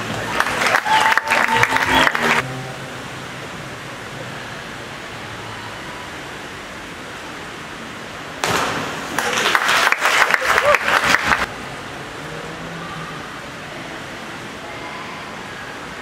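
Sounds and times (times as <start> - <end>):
spectators applauding: 0.0 - 2.4, 9.1 - 11.5
pool hall hum: 0.0 - 16.0
diver splashing into water: 8.4 - 9.6.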